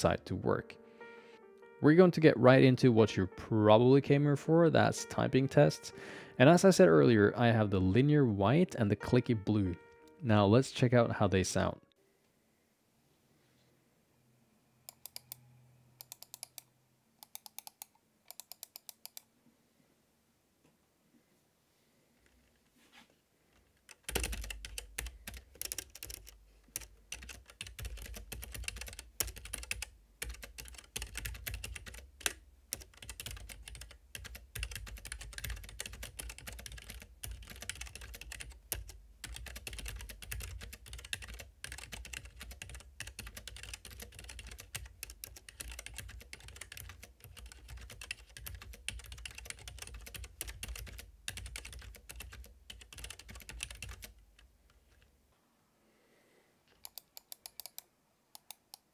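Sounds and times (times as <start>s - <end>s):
fast mechanical keyboard typing: 17.3s - 19.1s, 23.9s - 54.2s.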